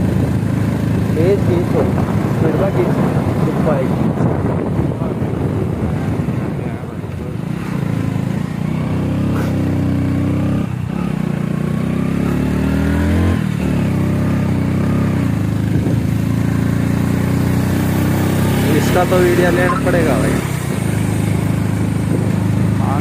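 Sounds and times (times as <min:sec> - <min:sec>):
wind on microphone: 0:00.0 - 0:09.8, 0:12.8 - 0:18.7, 0:19.4 - 0:23.0
small motorcycle engine climbing: 0:07.1 - 0:23.0.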